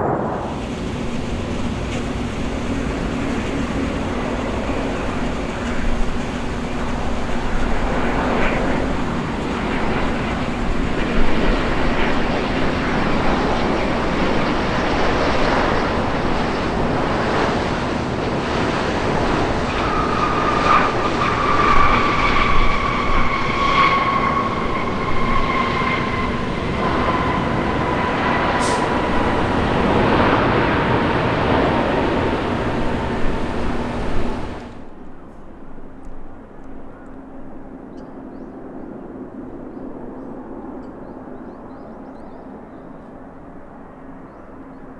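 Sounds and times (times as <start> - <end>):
jet airliner roar passing: 0.0 - 44.9
jet engine whine: 0.0 - 44.9.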